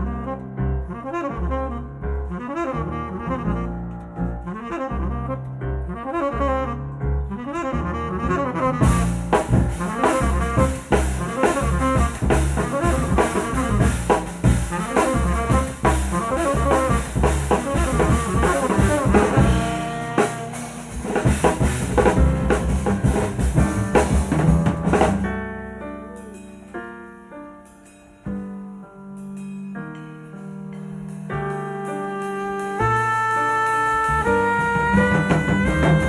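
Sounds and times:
tenor saxophone: 0.0s - 22.6s, 31.3s - 36.0s
double bass: 0.0s - 27.0s, 28.3s - 36.0s
piano: 0.0s - 36.0s
drums and cymbals: 8.8s - 36.0s.

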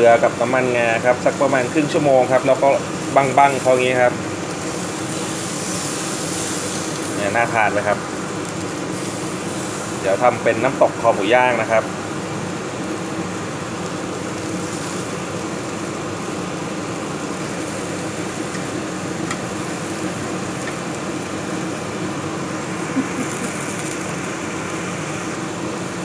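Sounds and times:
meat sizzling on grill: 0.0s - 26.0s
burner hum and rush: 14.4s - 26.0s.

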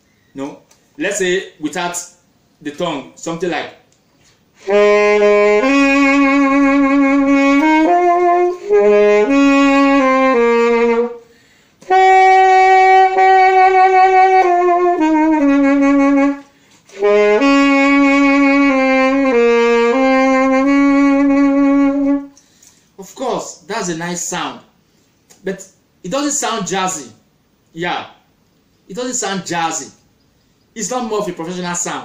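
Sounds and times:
saxophone slow melody: 4.6s - 22.4s.

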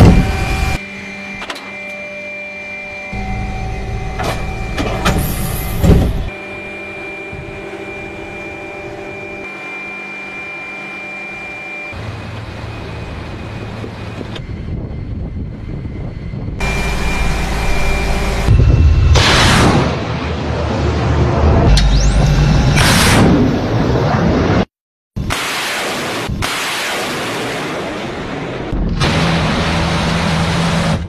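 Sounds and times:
machinery high whine and hum: 0.0s - 24.2s
loud thump: 5.1s - 6.3s
loud rushing noise: 16.7s - 24.6s.

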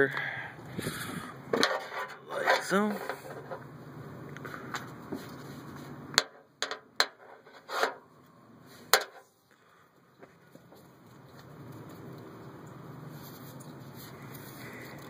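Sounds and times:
fitting clicks and knocks: 1.5s - 3.6s, 6.2s - 8.0s, 8.9s - 9.3s
hose rubbing: 7.2s - 8.0s.

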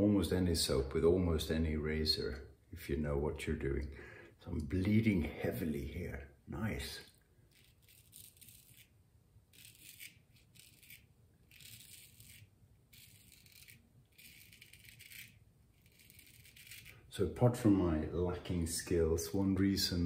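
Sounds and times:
razor scraping stubble: 7.3s - 17.6s.

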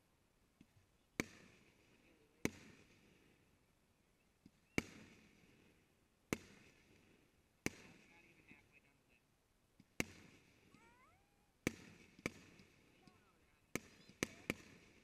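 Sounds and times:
fireworks bursting with echo: 1.2s - 3.6s, 4.5s - 8.8s, 9.8s - 15.0s.

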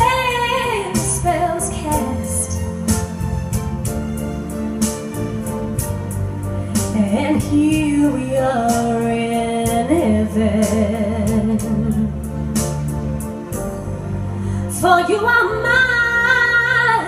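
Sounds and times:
woman singing into microphone: 0.0s - 2.6s, 6.9s - 12.2s, 14.7s - 17.0s
backing music with steady beat: 0.0s - 15.2s.

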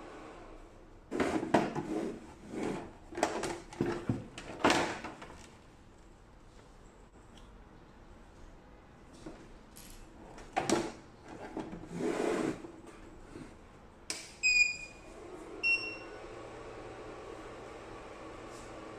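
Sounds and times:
short electronic beeps: 14.4s - 15.0s, 15.6s - 16.1s.

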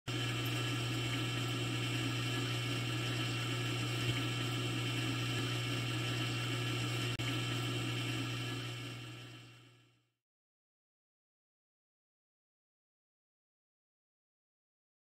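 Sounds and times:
buzzy electrical hum: 0.1s - 10.1s.

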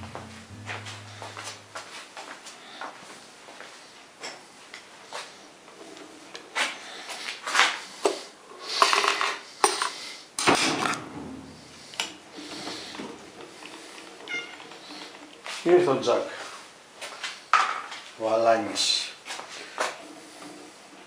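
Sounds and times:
hard objects clinking and scraping: 8.6s - 10.0s.

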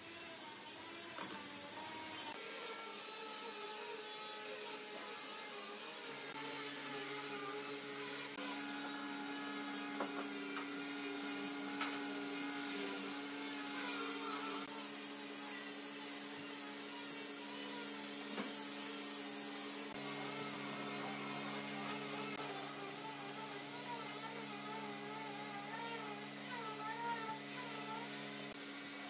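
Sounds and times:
steady hum: 19.3s - 28.6s.

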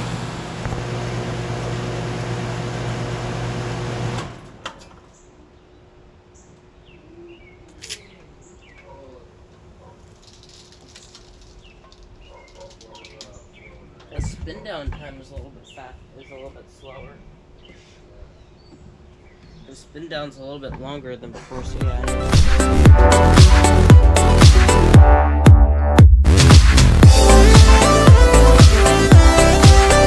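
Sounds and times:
air conditioner compressor hum: 11.6s - 22.0s.

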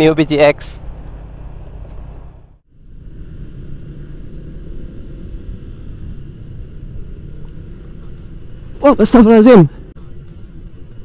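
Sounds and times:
scooter engine rumble: 0.3s - 8.8s.

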